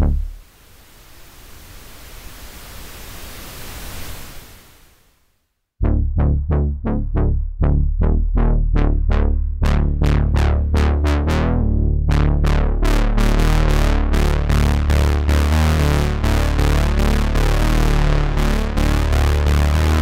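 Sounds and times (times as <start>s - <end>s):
steady low synth bass: 0.0s - 0.4s, 5.8s - 20.0s
synthesizer brass stabs: 0.0s - 0.4s, 5.8s - 20.0s.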